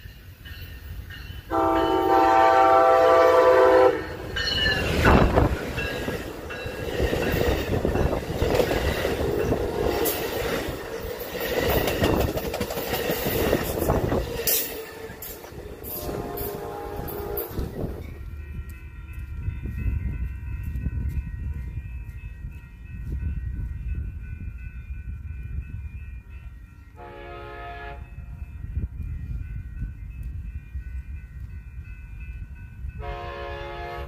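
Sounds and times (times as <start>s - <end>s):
train cars rumbling on rails: 0.0s - 34.0s
train horn: 1.5s - 4.4s, 14.6s - 18.0s, 27.0s - 28.2s, 33.0s - 34.0s.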